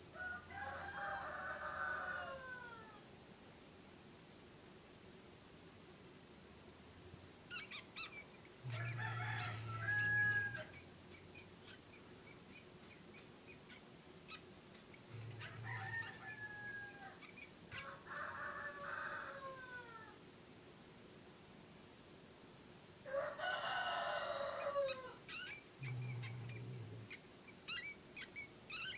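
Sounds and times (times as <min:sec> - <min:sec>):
cat meowing and chirping: 0:07.5 - 0:08.2, 0:24.9 - 0:28.9.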